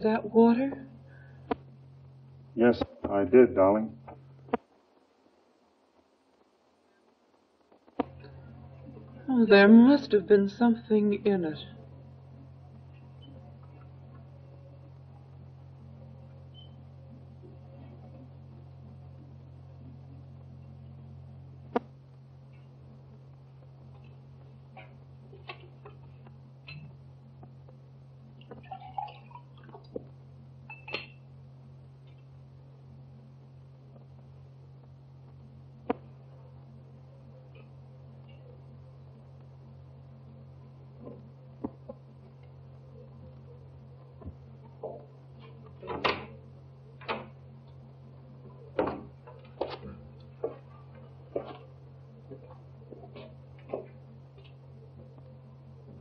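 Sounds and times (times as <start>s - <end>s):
low soundtrack hum: 0.0s - 56.0s
drink pouring into glass: 28.4s - 29.9s.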